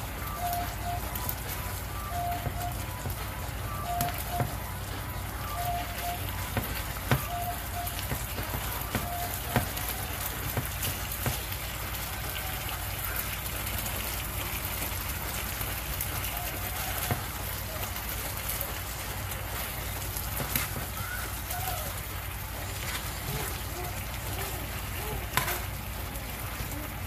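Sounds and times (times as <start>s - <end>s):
meat sizzling in a frying pan: 8.0s - 27.0s.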